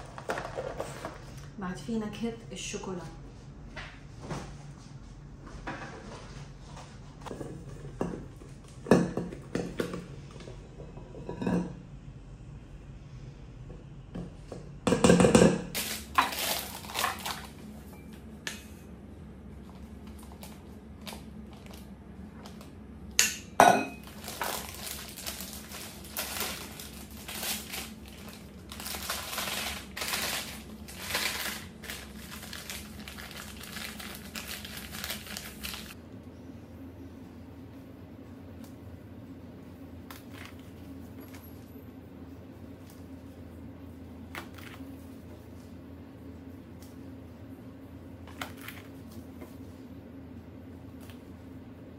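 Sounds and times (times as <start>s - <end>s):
metal bowl knocking and scraping: 7.3s - 11.8s
plastic rustling: 15.8s - 17.9s, 24.0s - 36.0s.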